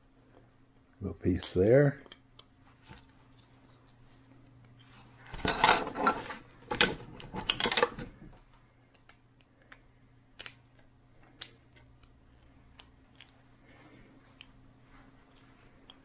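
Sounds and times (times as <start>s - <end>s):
plastic parts clattering: 5.4s - 8.2s
plastic bits clicking off: 6.7s - 8.0s.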